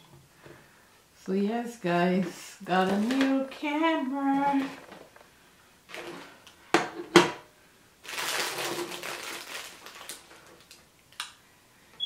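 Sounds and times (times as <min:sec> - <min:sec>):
plastic packaging crinkling: 0:02.8 - 0:05.2, 0:05.9 - 0:06.4, 0:08.0 - 0:11.2.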